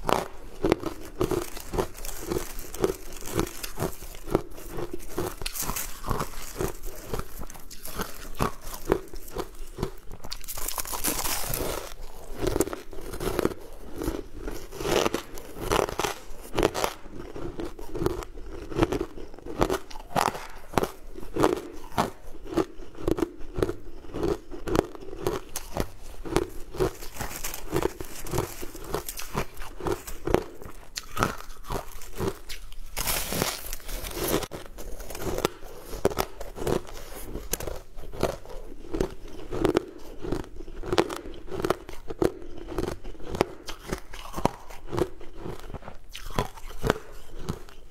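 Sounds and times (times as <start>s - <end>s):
ice being chewed: 0.0s - 47.9s
plastic bag crinkling: 0.9s - 4.4s, 26.7s - 30.3s.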